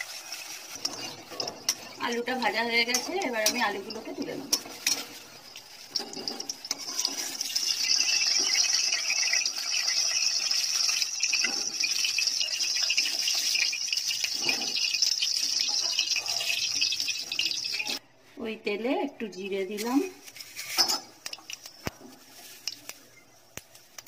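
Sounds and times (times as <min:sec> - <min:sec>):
oil sizzling in a pan: 0:00.0 - 0:18.0
metal spoon knocking a pan: 0:00.8 - 0:05.1.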